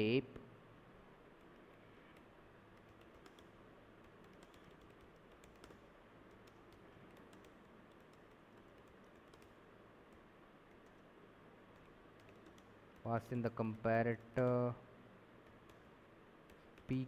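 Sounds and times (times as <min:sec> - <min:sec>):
low background hum: 0:00.0 - 0:17.0
keyboard typing: 0:02.1 - 0:11.0, 0:11.7 - 0:13.1, 0:15.4 - 0:17.0.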